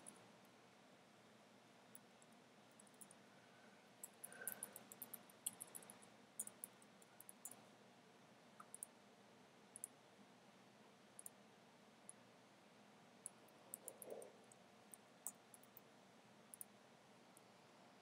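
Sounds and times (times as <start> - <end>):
computer keyboard and mouse clicks: 4.0 - 7.6.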